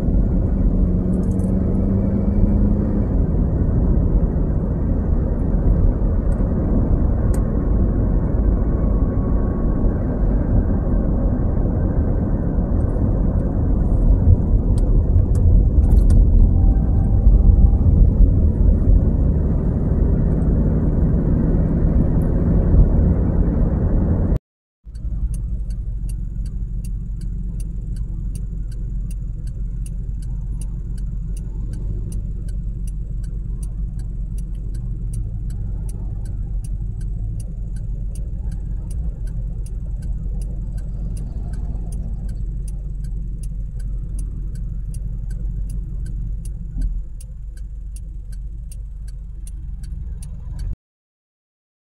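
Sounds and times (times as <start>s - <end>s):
turn signal ticking: 0.0s - 11.3s, 12.3s - 20.6s, 24.9s - 50.8s
road and engine rumble: 0.0s - 50.8s
traffic rumble: 0.0s - 50.8s
car engine idling: 24.9s - 50.8s.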